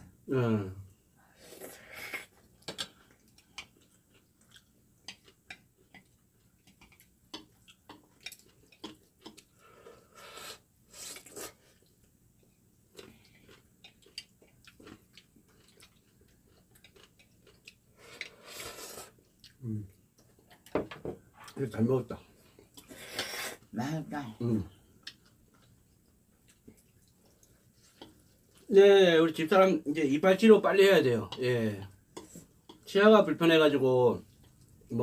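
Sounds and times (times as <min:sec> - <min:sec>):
noodles slurped and chewed: 0:01.4 - 0:20.7, 0:25.0 - 0:28.7.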